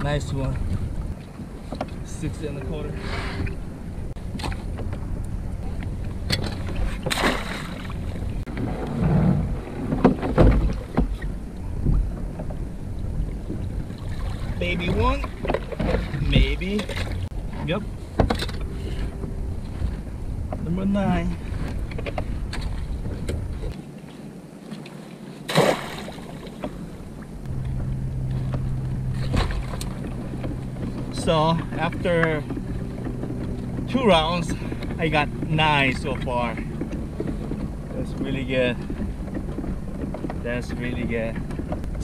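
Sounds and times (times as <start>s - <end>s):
wind buffeting microphone: 0.0s - 23.8s, 25.9s - 42.0s
water sloshing around kayak: 0.0s - 42.0s
net splashing into water: 7.0s - 8.1s, 25.5s - 26.5s.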